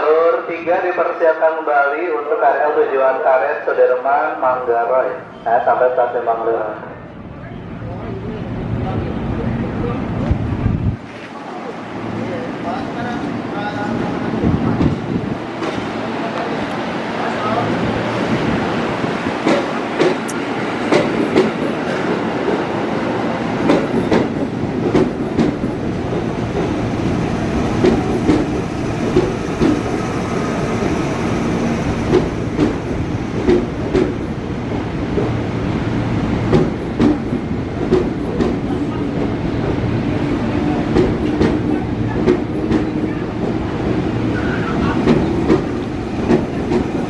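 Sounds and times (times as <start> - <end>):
train wheels clacking over rail joints: 19.4 - 22.6, 23.6 - 26.8, 27.8 - 29.9, 32.1 - 34.2, 36.5 - 38.6, 45.0 - 47.0
train running rumble: 23.5 - 47.0.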